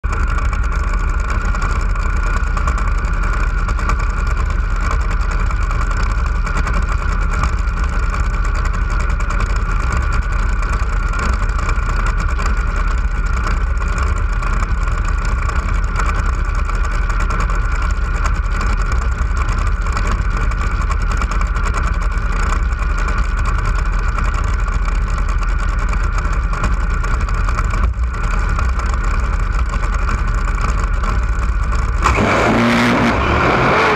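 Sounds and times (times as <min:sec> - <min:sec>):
boat engine idling loudly: 0:00.0 - 0:33.9.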